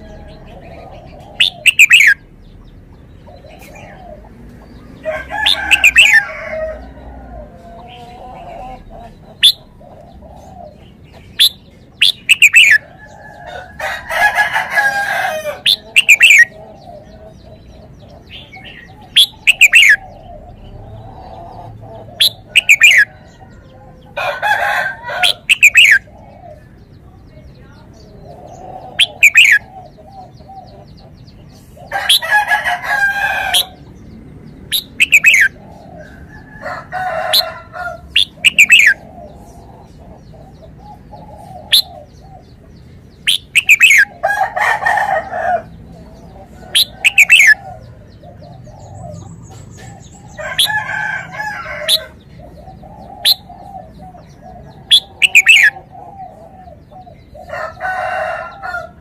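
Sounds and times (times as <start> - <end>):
bird whistled calls: 1.4 - 2.2, 19.1 - 20.1, 34.8 - 35.6, 43.3 - 44.1, 54.9 - 55.8
rooster crowing: 5.0 - 8.9, 12.6 - 16.5, 22.2 - 26.0, 31.9 - 33.9, 35.2 - 39.0, 43.7 - 45.8, 50.0 - 52.2, 57.5 - 59.0.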